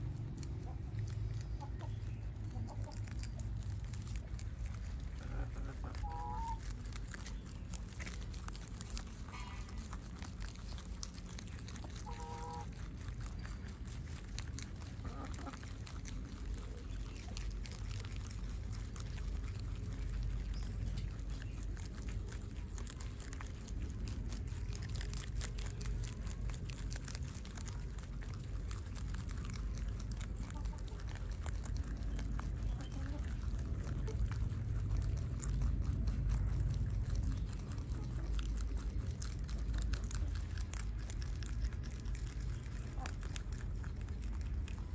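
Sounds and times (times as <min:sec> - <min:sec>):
low background rumble: 0:00.0 - 0:44.9
rabbits crunching greens: 0:00.0 - 0:44.9
farm fowl calls: 0:05.2 - 0:06.7, 0:11.8 - 0:12.8.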